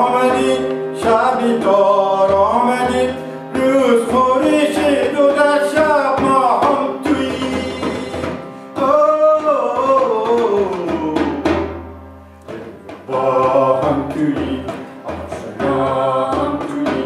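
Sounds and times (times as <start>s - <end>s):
harmonium drone: 0.0s - 9.4s
voices singing together: 0.0s - 11.4s, 12.5s - 17.0s
frame drum: 0.0s - 17.0s.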